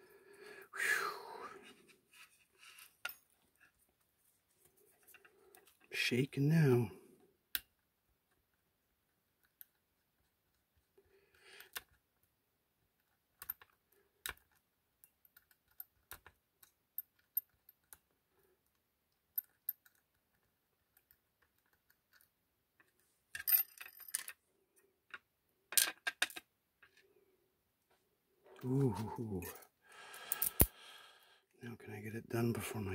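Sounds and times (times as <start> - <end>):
lockpick metallic clicks: 30.2 - 30.8.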